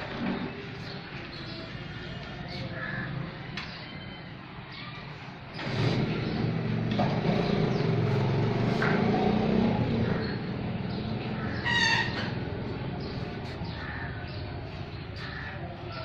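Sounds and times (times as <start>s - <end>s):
vehicle engine running: 5.6s - 16.0s.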